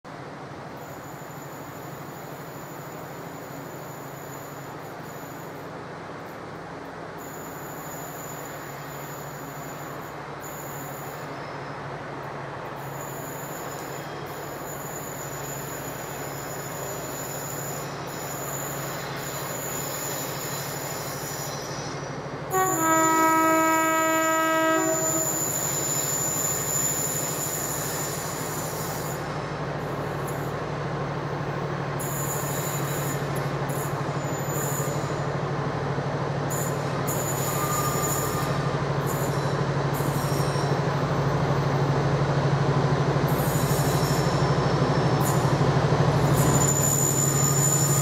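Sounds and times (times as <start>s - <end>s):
diesel locomotive engine drone: 0.1s - 48.0s
locomotive horn: 22.5s - 25.5s.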